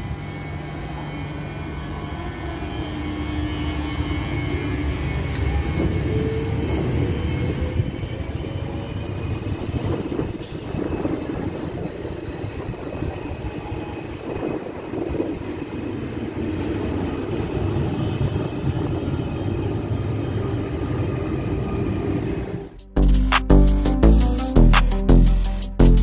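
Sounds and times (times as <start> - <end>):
wheels rumbling on rails: 3.3 - 22.8.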